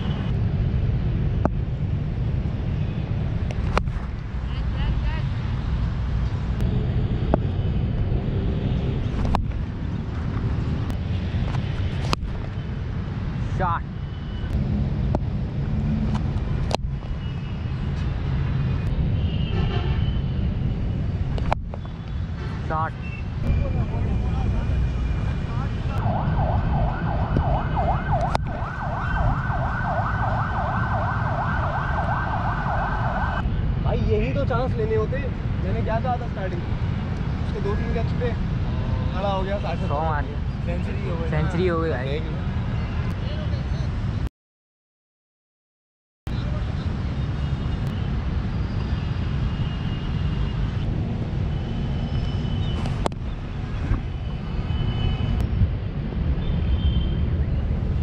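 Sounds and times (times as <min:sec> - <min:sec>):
low wind rumble: 0:23.3 - 0:38.7
emergency siren yelping: 0:26.0 - 0:33.4.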